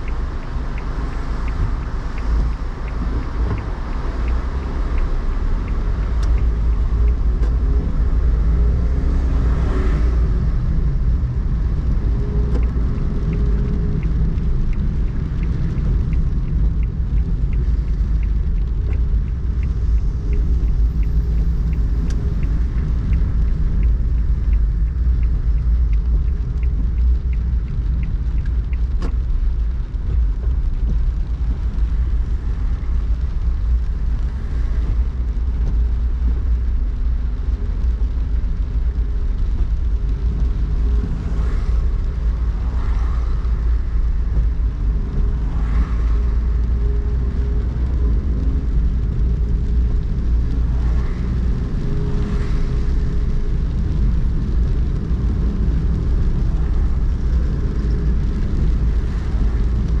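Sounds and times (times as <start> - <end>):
car driving on wet streets: 0.0 - 60.0.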